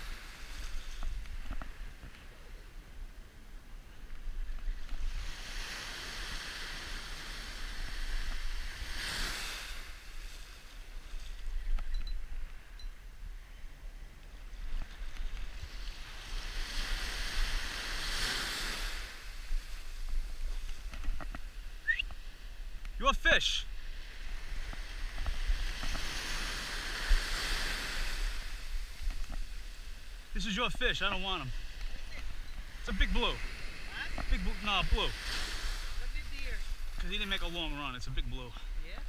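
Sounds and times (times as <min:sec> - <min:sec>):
surf breaking on beach: 0:04.7 - 0:11.4, 0:14.5 - 0:22.4, 0:23.0 - 0:39.0.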